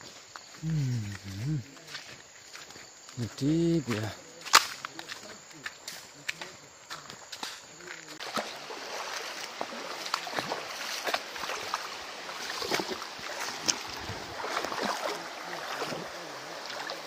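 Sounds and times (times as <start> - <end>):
stream water rushing and splashing: 3.9 - 17.0.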